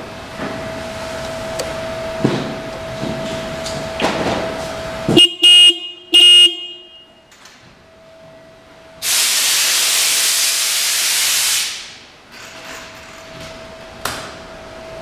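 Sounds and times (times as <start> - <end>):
motorcycle horn blasts: 5.1 - 7.3.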